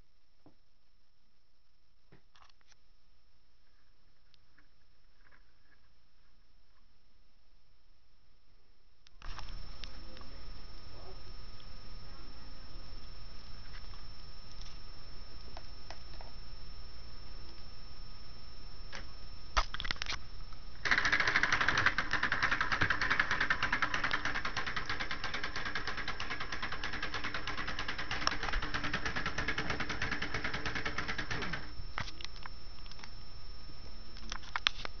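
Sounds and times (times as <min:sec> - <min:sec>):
solenoid engine clattering: 0:20.8 - 0:31.7.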